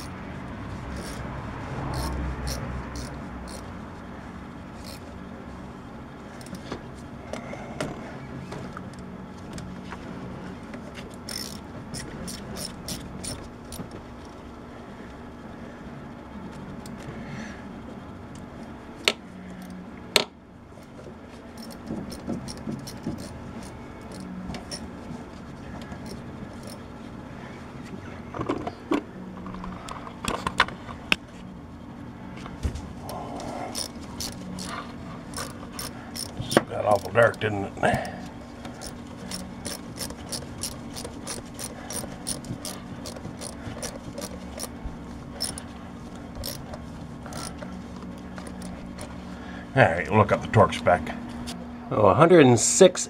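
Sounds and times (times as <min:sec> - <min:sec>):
steady low hum: 0:00.0 - 0:53.0
socket wrench ratchet clicks: 0:01.0 - 0:01.2, 0:01.9 - 0:03.7, 0:04.8 - 0:05.0, 0:11.3 - 0:13.4, 0:21.6 - 0:24.8, 0:26.0 - 0:26.8, 0:33.7 - 0:34.7, 0:35.3 - 0:37.4, 0:38.8 - 0:44.7, 0:45.4 - 0:45.6, 0:46.4 - 0:46.6, 0:47.3 - 0:47.6.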